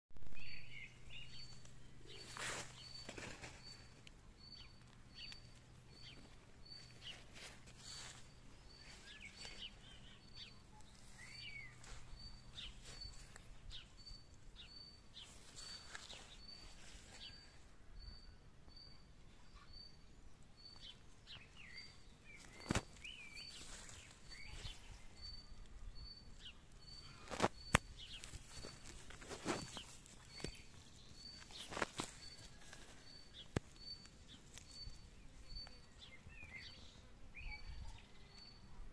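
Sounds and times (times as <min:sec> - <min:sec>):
birds chirping and calling: 0:00.4 - 0:17.4.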